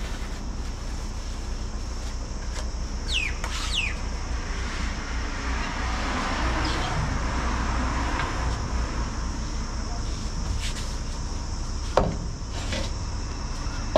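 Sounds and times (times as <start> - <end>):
steady low rumble: 0.0 - 13.9
bird whistled calls: 3.0 - 4.0.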